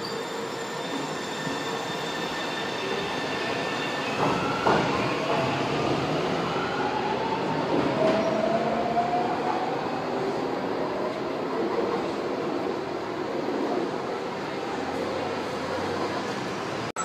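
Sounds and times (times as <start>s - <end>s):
wheel squeal: 0.0s - 5.2s.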